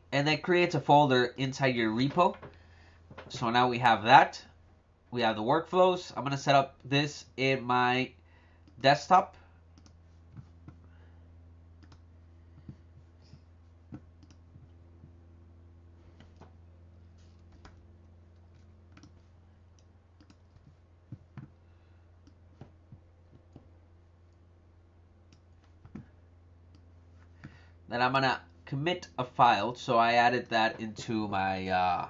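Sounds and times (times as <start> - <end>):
steady low hum: 0.0 - 32.0
faint computer clicks: 11.8 - 14.7, 17.5 - 21.6.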